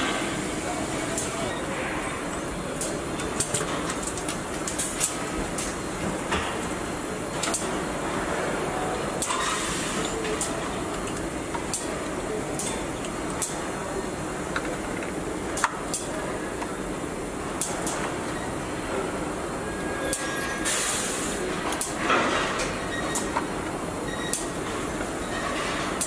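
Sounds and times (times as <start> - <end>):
machinery hum: 0.0 - 26.0.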